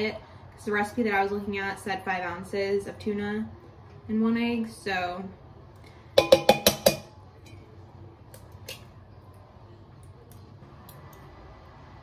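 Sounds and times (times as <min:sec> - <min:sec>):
egg knocking on steel bowl: 0:06.2 - 0:07.1.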